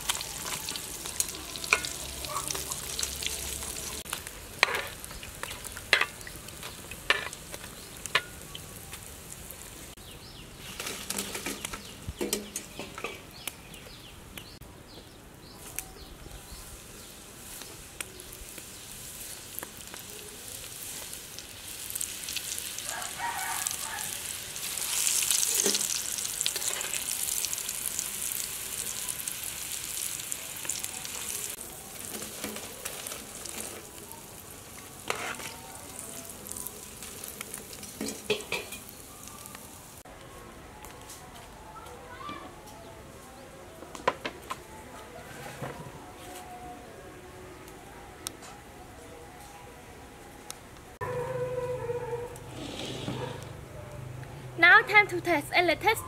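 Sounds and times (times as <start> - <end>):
oil sizzling: 0.0 - 10.0, 16.6 - 40.1.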